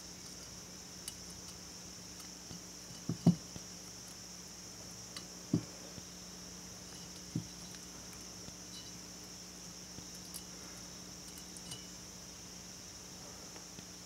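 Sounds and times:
steady high hiss: 0:00.0 - 0:14.0
dull knocks on metal: 0:03.0 - 0:03.5.

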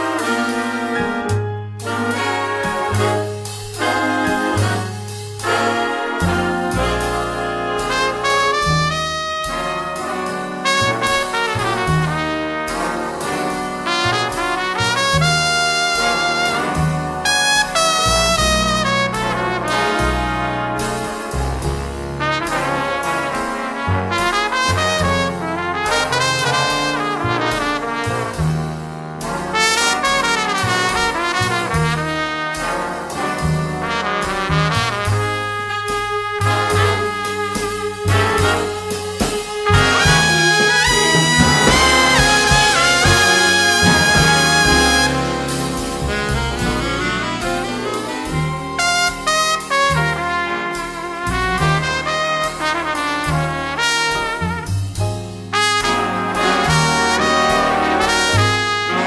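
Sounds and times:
brass jazz music: 0:00.0 - 0:59.0
trumpets and trombones: 0:00.0 - 0:59.0
bass line: 0:00.9 - 0:25.8, 0:33.4 - 0:52.3.

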